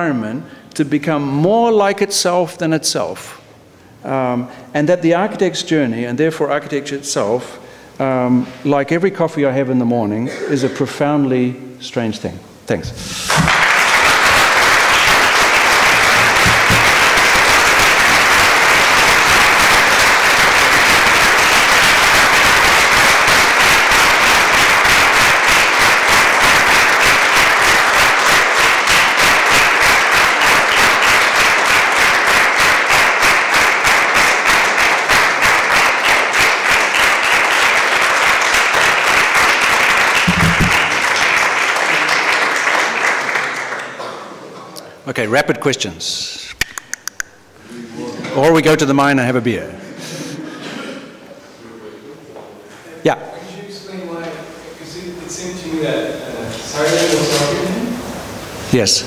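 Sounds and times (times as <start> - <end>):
audience applauding: 13.1 - 44.2.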